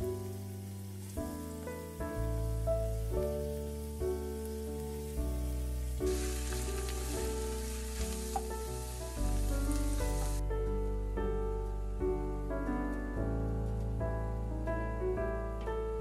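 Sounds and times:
food sizzling in a pan: 0.0 - 10.4
background music: 0.0 - 16.0.

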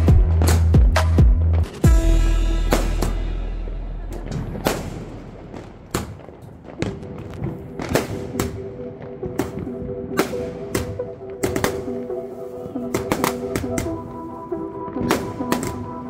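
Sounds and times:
background music: 0.0 - 16.0
fireworks bangs and bursts: 4.1 - 16.0.

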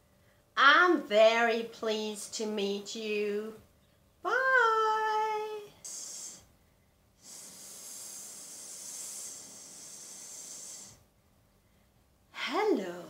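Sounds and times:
woman hissing like a snake: 5.8 - 6.5, 7.2 - 11.1.

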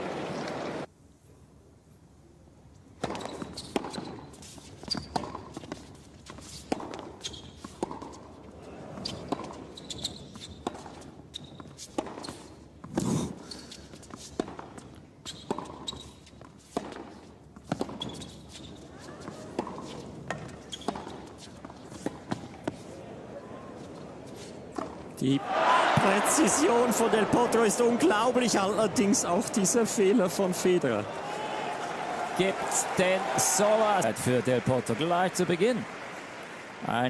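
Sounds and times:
sneaker squeaks on court: 3.1 - 5.4, 7.2 - 7.8, 9.0 - 12.5, 15.2 - 16.4, 17.8 - 18.9, 19.6 - 21.3.

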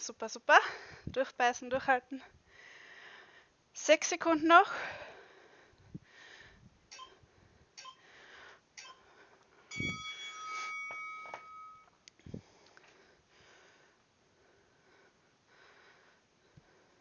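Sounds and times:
faint breathing: 0.6 - 1.1, 2.4 - 3.6, 4.7 - 9.7, 12.2 - 17.0
metallic ringing: 9.7 - 12.0.

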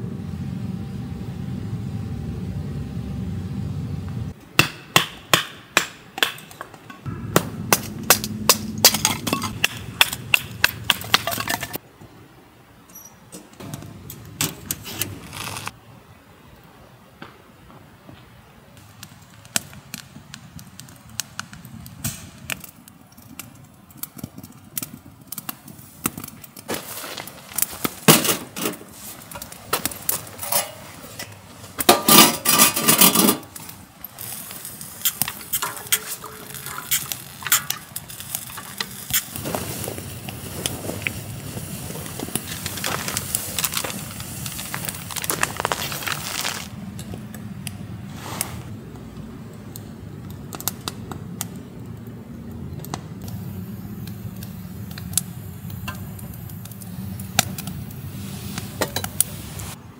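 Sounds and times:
low rush: 7.1 - 11.8
pots and cutlery clinking: 30.4 - 33.4.

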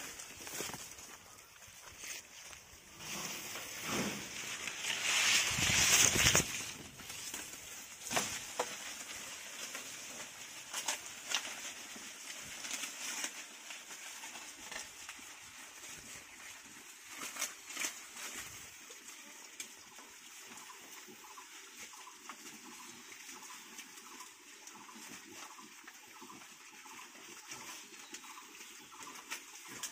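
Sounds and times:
sharp crackles: 0.0 - 13.5
leaves rustling: 0.0 - 29.9
pigs chewing corn stalks: 0.0 - 29.9.

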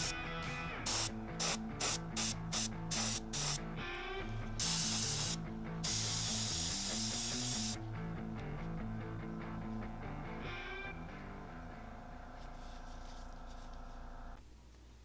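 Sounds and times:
airbrush spraying bursts: 0.8 - 3.6, 4.6 - 7.8.

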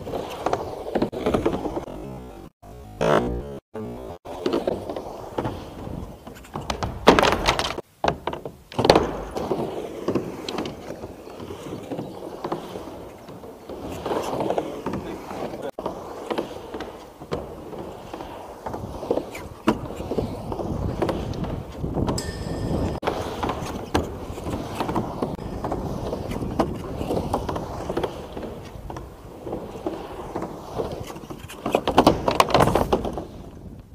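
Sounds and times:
skateboard wheels rolling on ramp: 0.0 - 33.9
skateboard knocks: 4.4 - 10.9
high ringing tone: 22.2 - 24.1.

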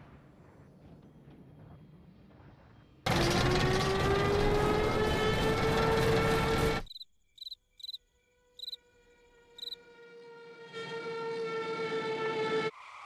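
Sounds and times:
crickets chirping: 6.9 - 8.8, 9.6 - 9.8.

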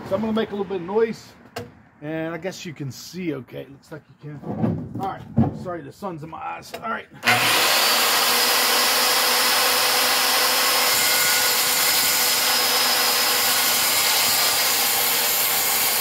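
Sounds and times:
circular saw whining: 7.2 - 16.0
saw blade cutting wood: 7.2 - 16.0.

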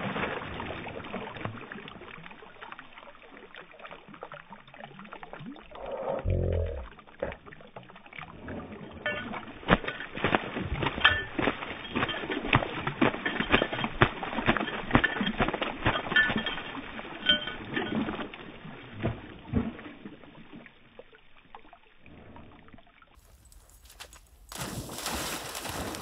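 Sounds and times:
dog shaking and splashing water: 8.5 - 19.9, 23.2 - 26.0.

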